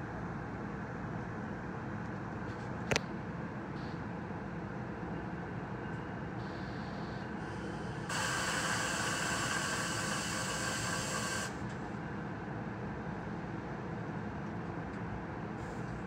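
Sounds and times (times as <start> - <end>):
compressed air hissing from train: 7.3 - 11.7.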